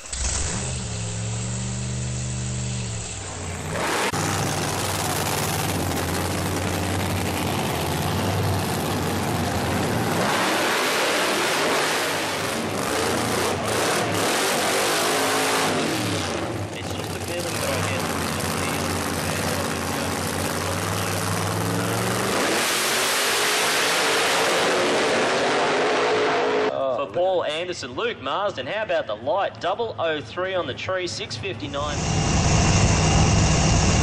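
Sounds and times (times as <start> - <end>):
drag car engine roaring: 0.0 - 26.8, 30.8 - 34.0.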